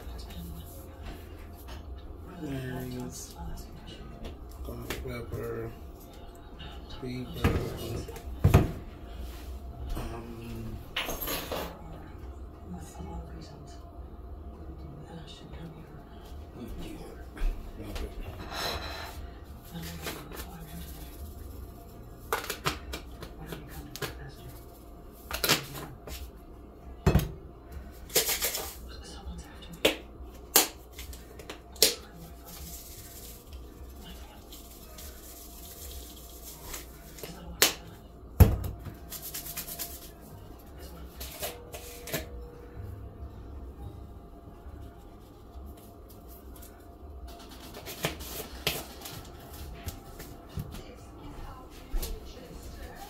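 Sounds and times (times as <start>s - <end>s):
low steady hum: 0.0s - 53.0s
seasoning bottle shaking: 32.1s - 37.3s, 39.0s - 40.2s.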